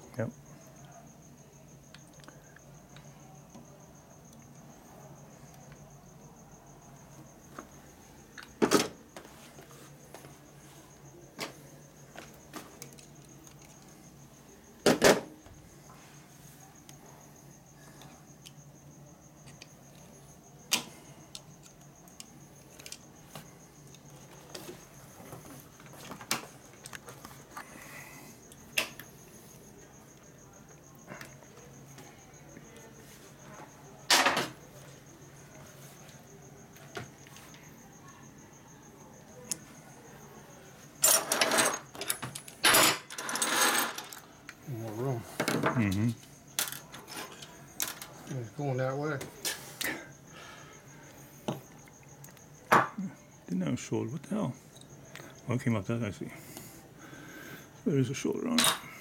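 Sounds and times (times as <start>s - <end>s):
metal parts and tools clinking: 41.0s - 44.3s, 46.6s - 48.2s, 58.6s - 59.0s.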